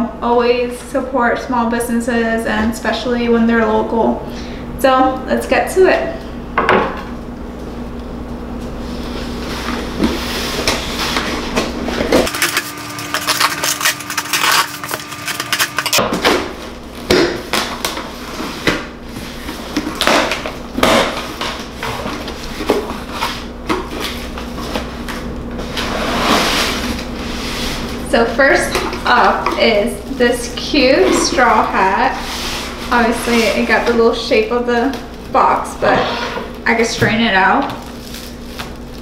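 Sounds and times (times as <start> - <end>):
packing tape tearing: 12.2 - 16.5, 19.8 - 22.2, 37.8 - 39.0.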